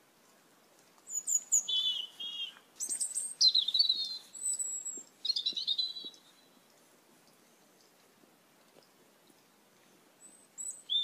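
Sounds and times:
starling chirping and whistling: 1.1 - 6.2, 10.6 - 11.0.

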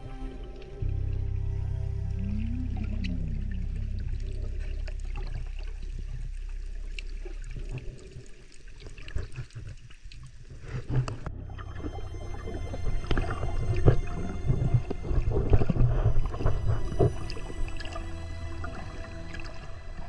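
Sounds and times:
muffled underwater rumble: 0.0 - 20.0.

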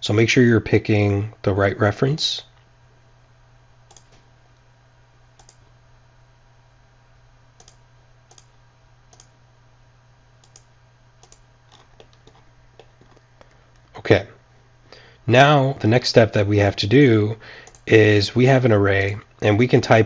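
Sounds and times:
faint low hum: 0.0 - 20.0
computer mouse clicking: 3.9 - 4.3, 5.4 - 5.6, 7.6 - 9.3, 10.4 - 13.9, 17.6 - 17.9.

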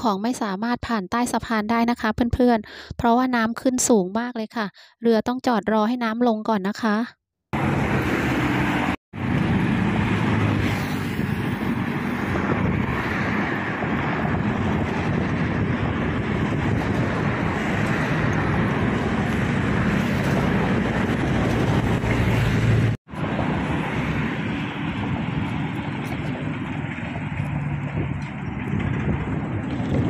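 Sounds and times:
engine running: 7.6 - 30.0
rushing noise: 7.6 - 30.0.

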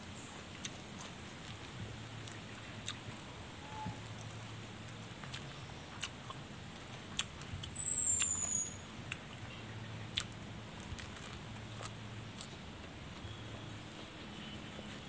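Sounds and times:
fingers picking at food: 0.6 - 3.0, 10.1 - 13.3.

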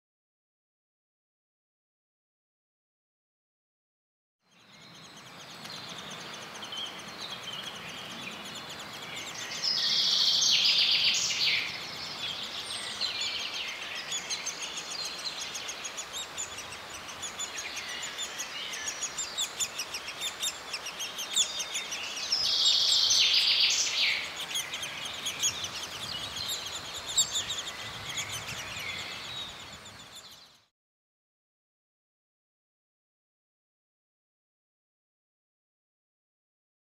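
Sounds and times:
birds chirping and singing: 4.5 - 30.7.

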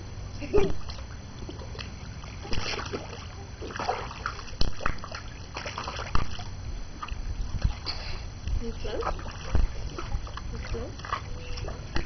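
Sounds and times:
pool water splashing: 0.5 - 12.0
slaps on water: 4.6 - 6.4.

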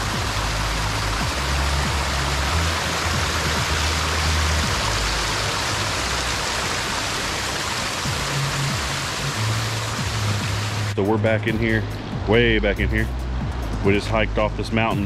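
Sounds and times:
river water rushing: 0.0 - 11.0
low background music: 0.0 - 15.0.

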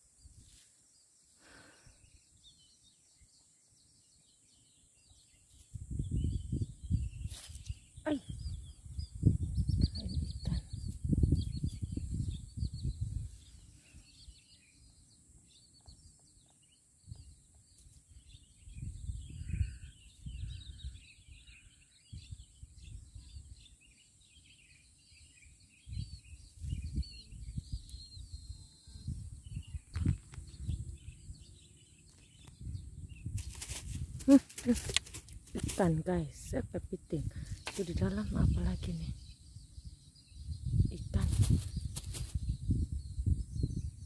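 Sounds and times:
small birds chirping: 0.0 - 44.0.

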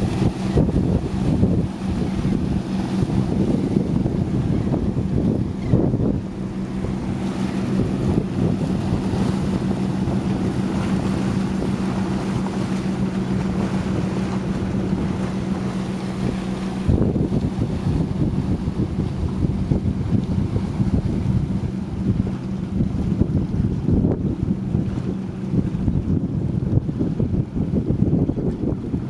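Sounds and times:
surf washing against boulders: 0.0 - 26.9
low motor hum: 0.0 - 29.0
wind buffeting microphone: 0.0 - 29.0.

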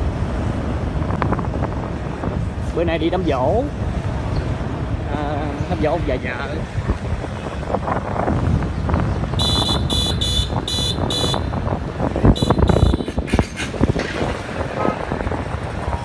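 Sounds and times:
traffic road and wind noise: 0.0 - 16.0
vehicle horn beeping: 9.3 - 11.5, 12.3 - 13.2.

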